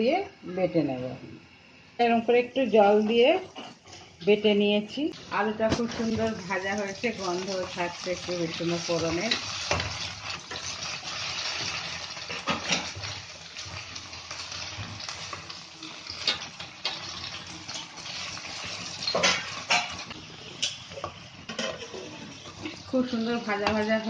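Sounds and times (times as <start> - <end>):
potatoes sizzling in oil: 5.2 - 24.0.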